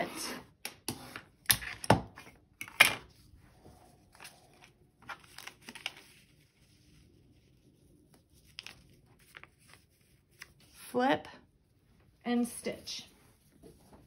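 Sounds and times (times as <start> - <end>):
paper and fabric rustling: 3.2 - 11.1, 11.8 - 14.0.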